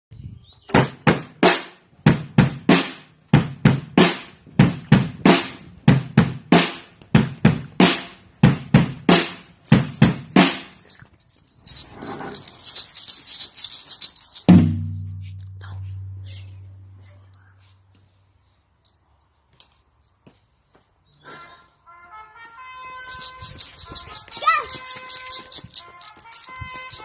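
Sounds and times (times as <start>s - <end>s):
drum struck hard rhythmically: 0.8s - 10.7s
high jingling: 9.4s - 15.5s, 16.4s - 20.4s, 22.9s - 27.0s.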